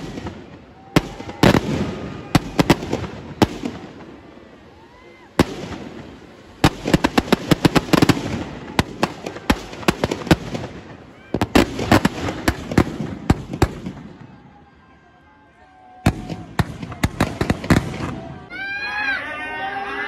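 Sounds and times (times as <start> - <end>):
rapid string of firecracker cracks: 0.0 - 14.2, 16.1 - 18.5
firecrackers banging: 0.0 - 14.7, 16.0 - 18.5.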